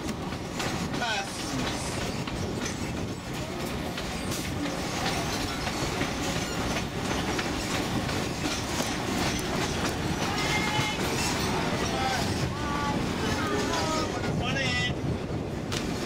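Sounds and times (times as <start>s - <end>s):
track clicks and clacks: 0.0s - 12.5s
train wheels rumbling on rail: 0.0s - 16.0s.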